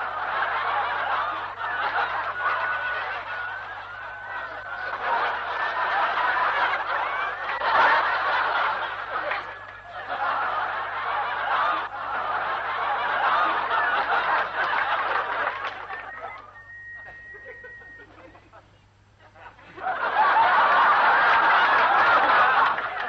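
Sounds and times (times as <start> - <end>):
studio audience laughing: 0.0 - 23.0.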